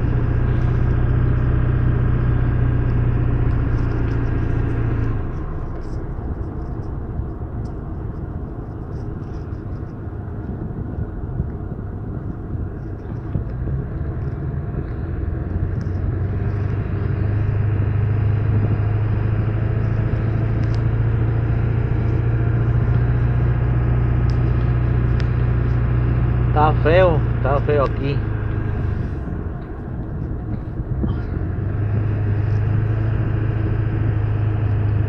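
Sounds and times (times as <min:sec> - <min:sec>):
diesel engine drone: 0:00.0 - 0:35.0.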